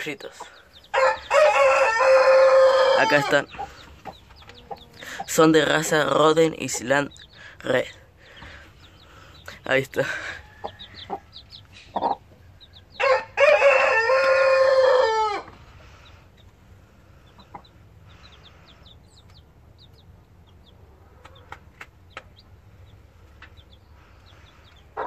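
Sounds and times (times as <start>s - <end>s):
chicks peeping: 0.0s - 25.0s
rooster crowing: 0.9s - 3.4s, 13.0s - 15.5s.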